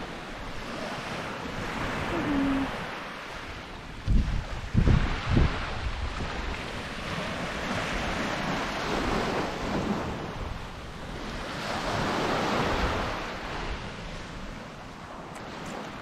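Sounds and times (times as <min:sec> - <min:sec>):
waves breaking on a beach: 0:00.0 - 0:16.0
wind rumbling on microphone: 0:00.0 - 0:16.0.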